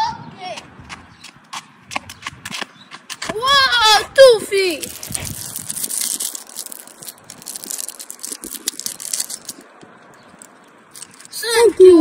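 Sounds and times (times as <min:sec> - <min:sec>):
plastic wrapper crinkling: 0:04.7 - 0:09.7, 0:10.3 - 0:11.4.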